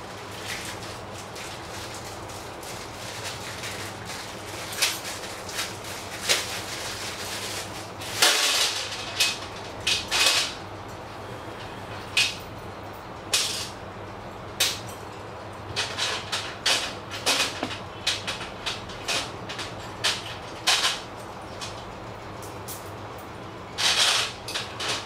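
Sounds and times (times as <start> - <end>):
plastic packet rustling: 0.4 - 7.8.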